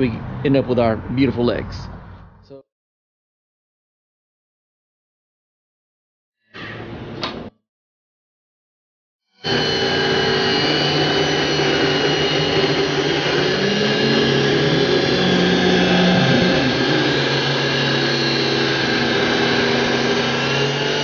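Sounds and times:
table saw ripping wood: 9.4 - 21.0.

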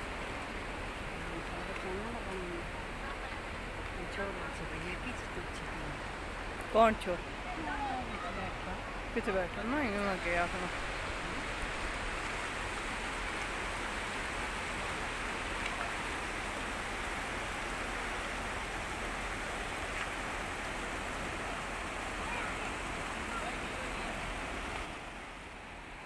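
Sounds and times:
rushing wind and road noise: 0.0 - 26.0.

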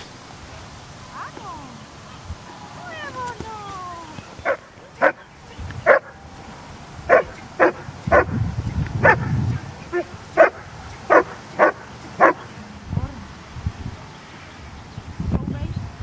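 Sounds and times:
dog barking: 4.4 - 6.2, 7.1 - 8.3, 9.0 - 9.3, 9.9 - 12.5.

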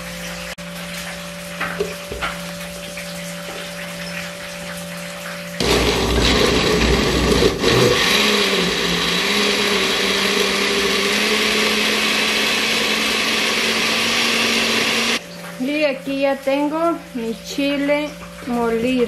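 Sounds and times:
blender running: 5.6 - 15.2.

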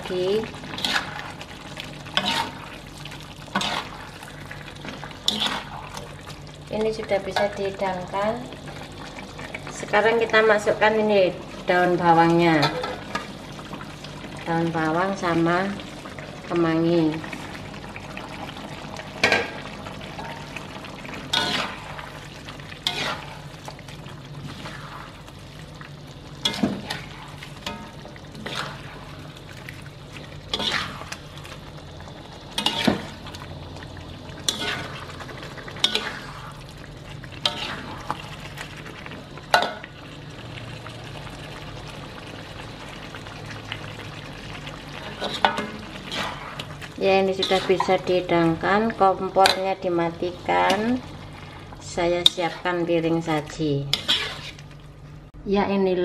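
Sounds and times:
food sizzling: 0.0 - 55.4
metal spatula scraping a wok: 0.7 - 1.3, 2.1 - 2.7, 3.5 - 4.0, 5.2 - 5.9, 21.3 - 22.0, 22.8 - 23.5, 26.4 - 29.1, 30.5 - 31.2, 32.6 - 33.1, 34.4 - 35.0, 35.8 - 36.6, 37.4 - 38.2, 45.1 - 46.6, 47.3 - 48.0, 53.8 - 54.7.

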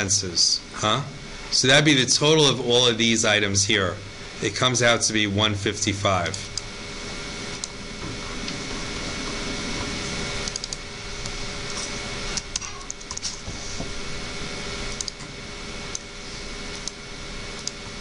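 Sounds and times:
steady hum: 0.0 - 18.0.

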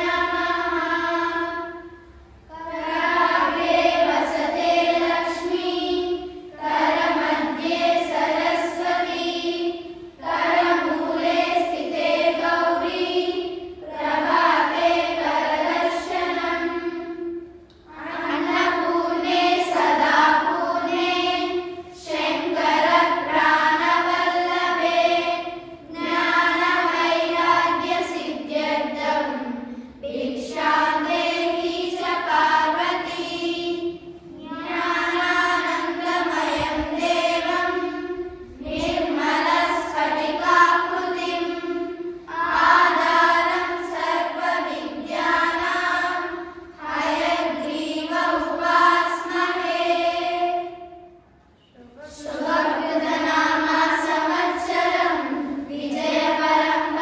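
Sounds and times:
children chanting in unison: 0.0 - 57.0.

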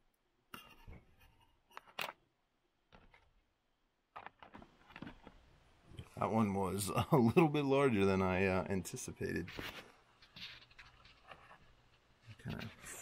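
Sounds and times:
plastic boxes clicking and tapping: 4.1 - 5.4.

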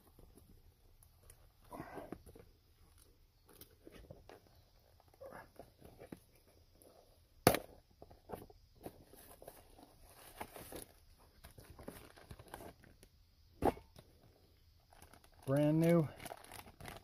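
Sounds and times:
plastic rustling: 9.0 - 13.0, 14.8 - 17.0.

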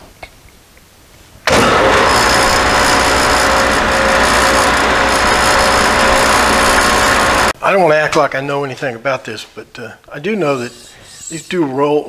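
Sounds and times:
drum sander whirring: 1.5 - 7.6.

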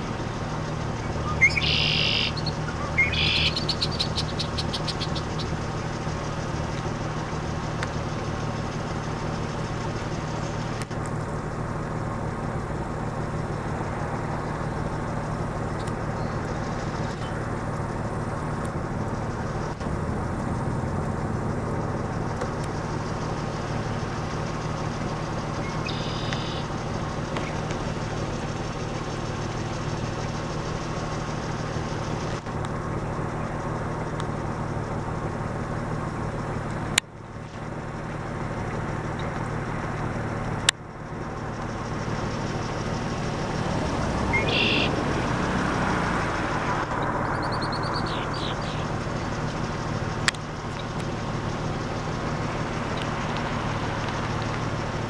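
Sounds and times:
road traffic hum: 0.0 - 55.0
blackbird singing: 1.0 - 5.7, 25.6 - 26.7, 44.1 - 45.2, 46.9 - 49.0
sharp clicks: 52.8 - 54.7.

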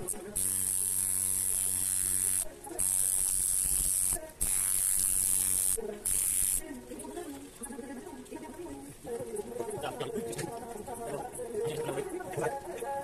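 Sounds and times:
tattoo machine buzzing: 0.0 - 6.8.

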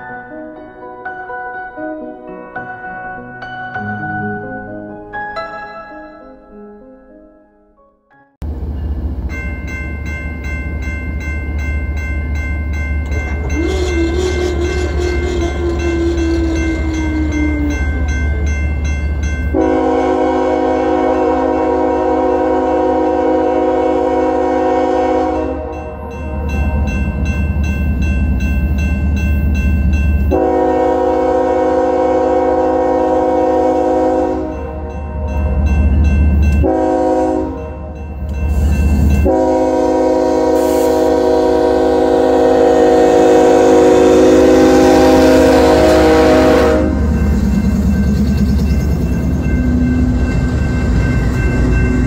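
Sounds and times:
crossing bell ringing: 8.4 - 52.0
rail noise: 8.4 - 52.0
locomotive air horn blasts: 13.4 - 17.8, 19.5 - 26.2, 30.3 - 34.8, 36.6 - 38.0, 39.2 - 47.2.

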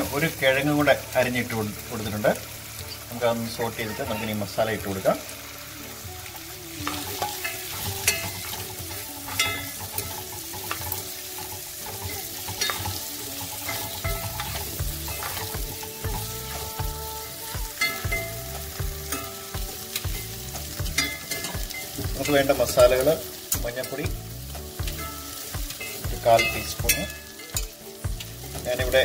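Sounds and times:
vegetables sizzling in oil: 0.0 - 29.0.

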